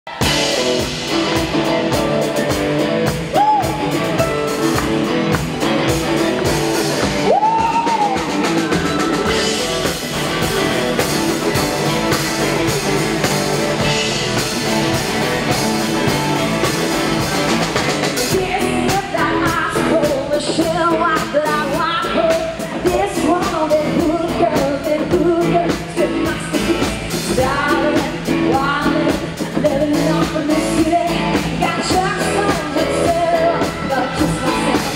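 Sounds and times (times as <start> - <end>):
bass guitar: 0.1 - 34.9
drum kit: 0.1 - 34.9
electric guitars: 0.1 - 34.9
person singing: 18.1 - 34.9.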